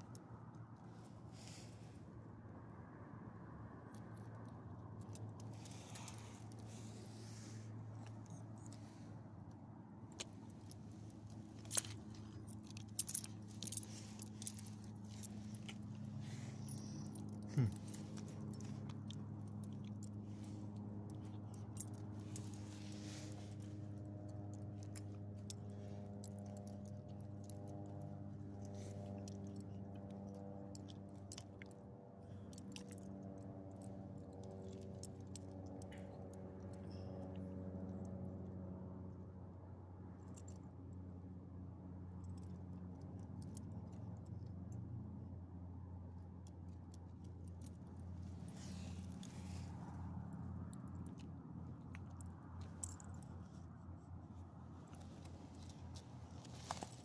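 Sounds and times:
low hum: 1.0 - 31.4
leash clip jingling: 5.0 - 7.2, 10.2 - 31.5, 47.2 - 50.0, 50.8 - 53.4.

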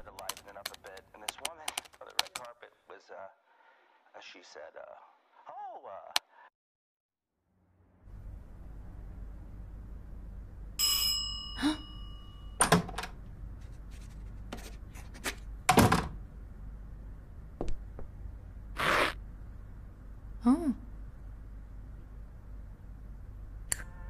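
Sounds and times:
steady low hum: 7.6 - 24.0.

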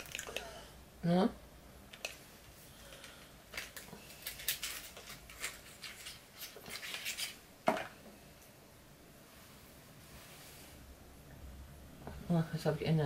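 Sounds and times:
cosmetic packaging clicks and clatters: 2.9 - 7.9.

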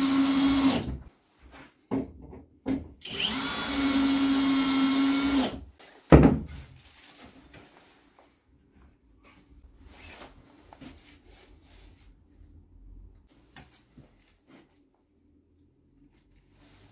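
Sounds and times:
cordless drill driving screws: 0.0 - 0.9, 3.0 - 5.6
faint handling sounds: 5.8 - 16.9.

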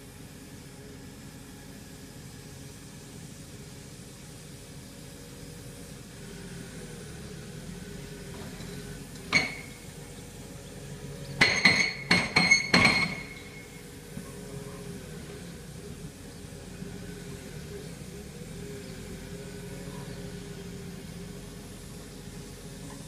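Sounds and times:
excavator diesel engine running: 0.0 - 23.0
metallic clanks: 11.4 - 13.6.

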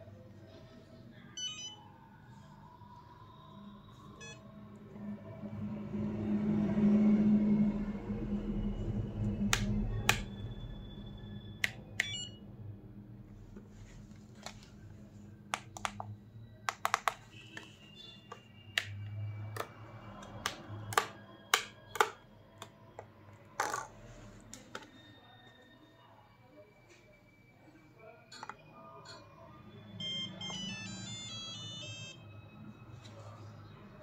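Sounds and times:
plastic clicks and taps: 15.5 - 16.1, 16.7 - 17.7, 19.6 - 22.7.

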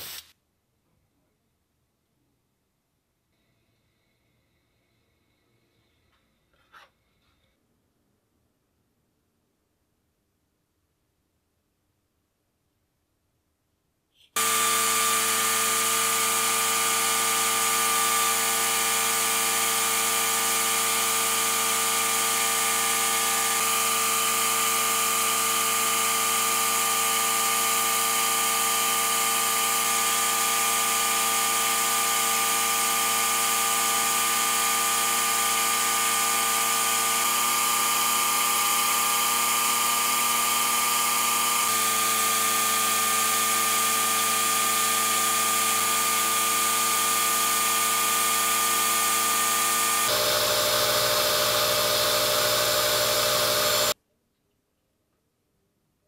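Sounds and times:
power tool motor whining: 14.4 - 54.0.

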